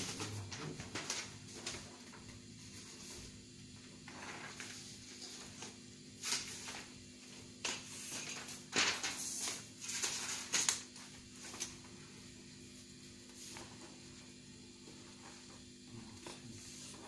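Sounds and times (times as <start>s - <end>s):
paper rustling and crackling: 0.0s - 3.4s, 4.0s - 12.0s.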